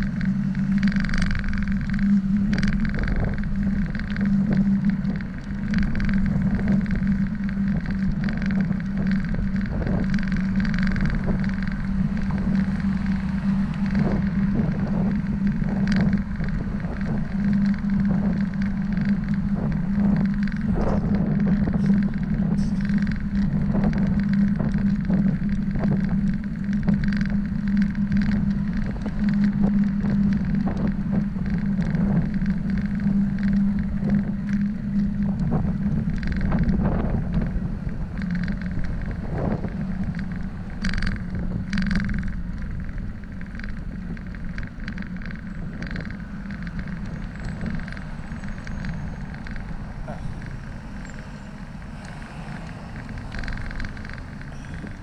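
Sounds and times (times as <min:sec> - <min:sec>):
bicycle tyres and wind rushing: 0:00.0 - 0:55.0
bike clicks and rattles: 0:00.0 - 0:55.0.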